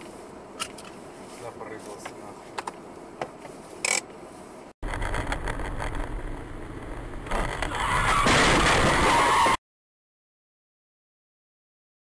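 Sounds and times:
road and wind noise: 0.0s - 9.6s
low car rumble: 4.8s - 8.9s.

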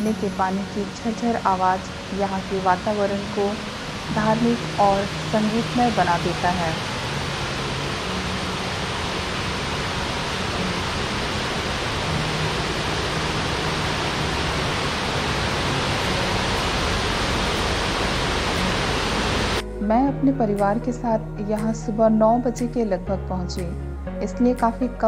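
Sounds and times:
waterfall rushing over rocks: 0.0s - 19.6s.

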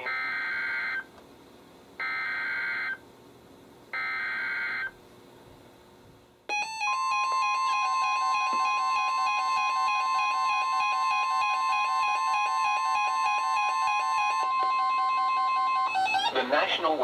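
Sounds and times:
electronic alarm beeps: 6.5s - 16.4s.

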